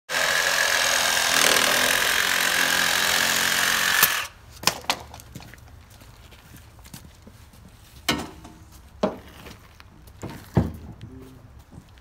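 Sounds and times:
power saw cutting plastic pipe: 0:00.1 - 0:04.4.

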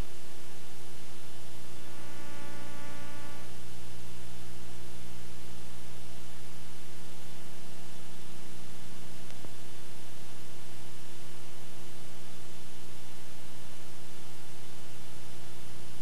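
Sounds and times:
electrical mains hum and hiss: 0:00.0 - 0:16.0
faint pitched tone: 0:01.6 - 0:03.8.

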